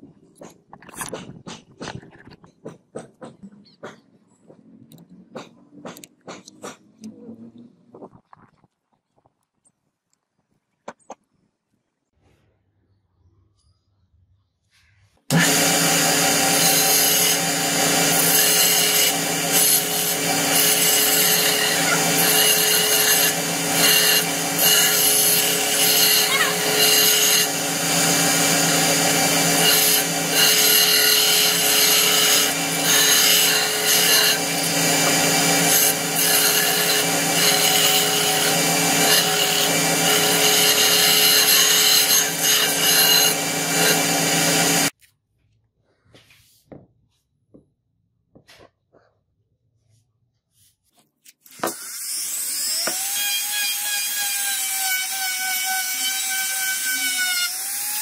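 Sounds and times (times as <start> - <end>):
belt grinder motor hum: 15.3 - 44.9.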